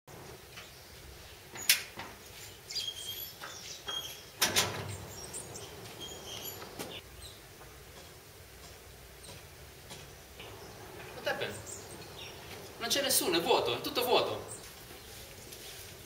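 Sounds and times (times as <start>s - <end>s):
bird chirps: 2.4s - 7.4s, 10.1s - 15.2s
metal gate clanging shut: 3.9s - 5.5s.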